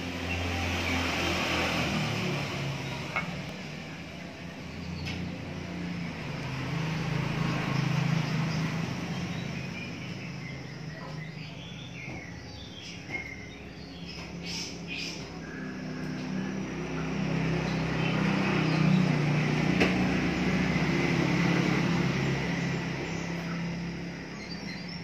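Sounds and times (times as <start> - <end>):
bird chirps: 6.9 - 19.3, 22.5 - 25.0.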